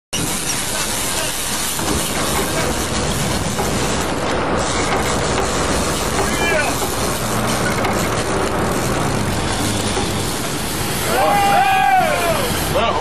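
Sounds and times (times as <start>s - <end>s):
boat running through choppy sea: 0.3s - 13.0s.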